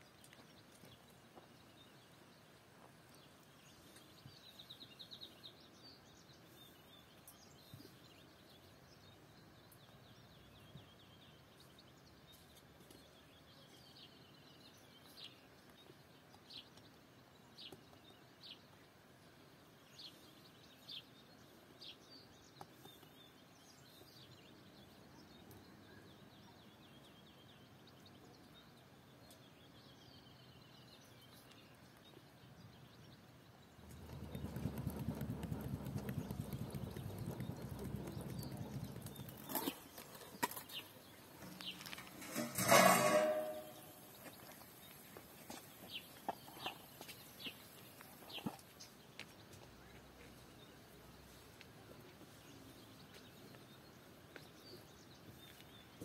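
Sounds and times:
quiet rural ambience: 0:00.0 - 0:56.0
birds chirping and trilling: 0:33.8 - 0:49.3.

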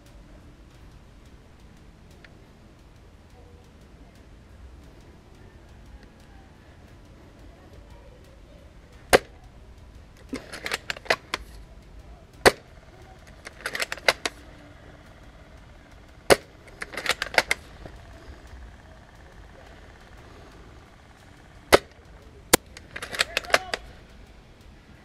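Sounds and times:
rifle bolt metallic clicks: 0:08.9 - 0:24.6
airsoft rifle shot crack: 0:12.4 - 0:24.0.

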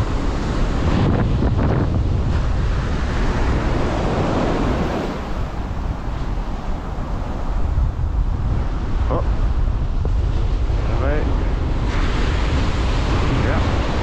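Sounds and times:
ocean surf breaking: 0:00.0 - 0:14.0
wind buffeting microphone: 0:00.0 - 0:14.0.

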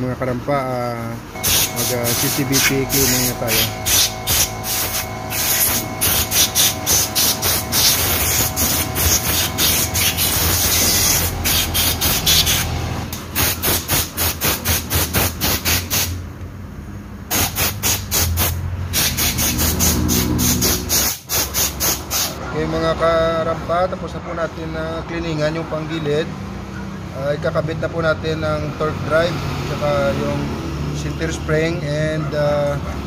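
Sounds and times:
compressed air blow gun bursts: 0:01.4 - 0:16.2, 0:17.3 - 0:22.4.

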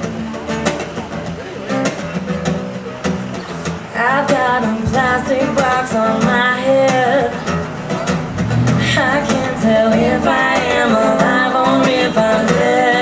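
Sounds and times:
acoustic guitar strumming: 0:00.0 - 0:13.0
woman singing: 0:04.0 - 0:07.4, 0:08.8 - 0:13.0.

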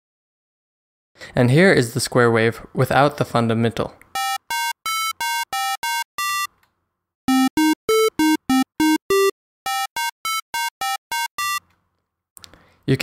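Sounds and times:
square-wave synthesizer melody: 0:04.2 - 0:06.5, 0:07.3 - 0:11.6.

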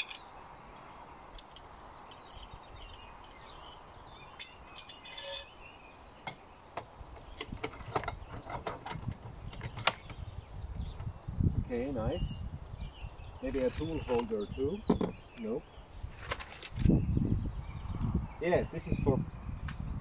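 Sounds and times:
clicks and knocks of parts: 0:00.0 - 0:00.3, 0:01.3 - 0:03.4
faint birds chirping: 0:00.0 - 0:20.0.

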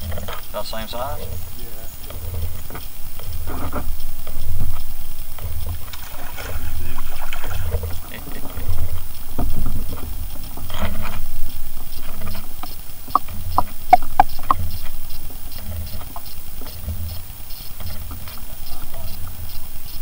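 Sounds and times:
sharp clicks: 0:13.6 - 0:14.6.

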